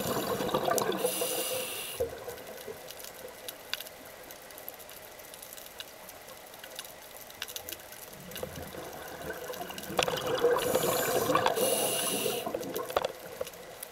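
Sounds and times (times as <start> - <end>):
bubbles rushing underwater: 0.0 - 2.9, 8.2 - 13.4
faint ticking clicks: 0.4 - 13.9.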